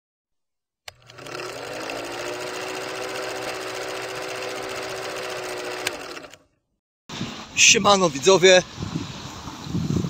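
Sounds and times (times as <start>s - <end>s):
film projector clattering: 0.9s - 6.4s.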